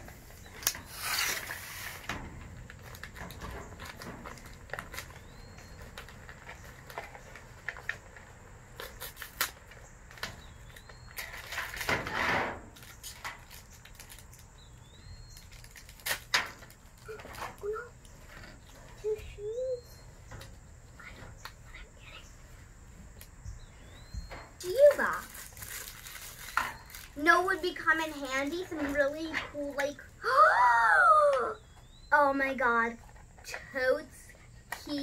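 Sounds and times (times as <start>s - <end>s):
plastic wrappers crinkling: 2.6s - 11.9s, 12.8s - 14.6s, 15.3s - 18.1s, 24.6s - 29.2s.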